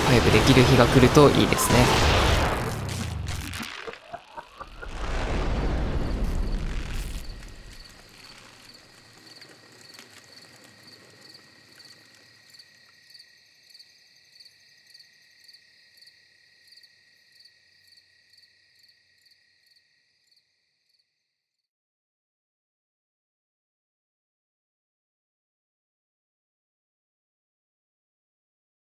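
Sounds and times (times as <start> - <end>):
crickets chirping: 3.6 - 21.3
low boom: 4.5 - 8.0.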